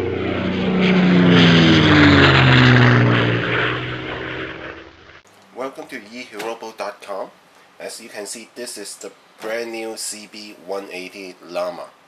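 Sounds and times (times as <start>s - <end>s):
aircraft engine drone passing: 0.0s - 5.3s.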